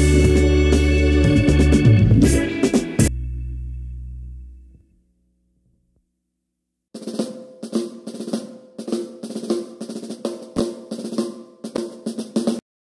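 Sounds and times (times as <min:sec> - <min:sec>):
drum-led background music: 0:00.0 - 0:03.3, 0:07.0 - 0:12.6.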